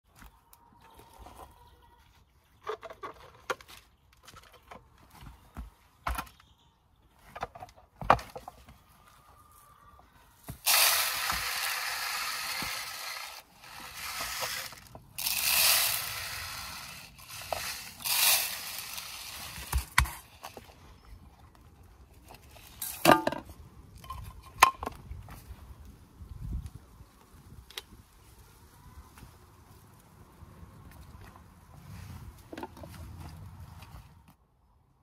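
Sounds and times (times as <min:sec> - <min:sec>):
bird seed pouring: 0:10.6 - 0:19.9.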